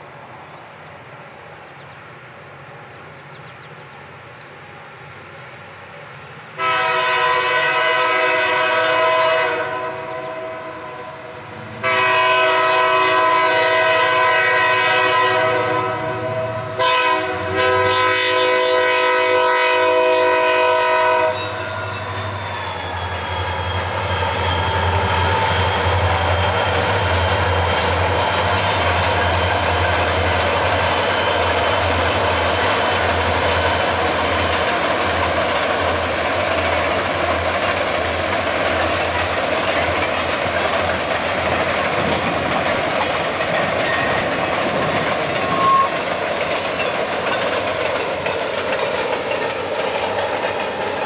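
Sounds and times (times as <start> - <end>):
locomotive air horn blasts: 6.6 - 22.6, 28.4 - 29.6, 45.5 - 46.1
diesel engines rumbling: 21.6 - 51.0.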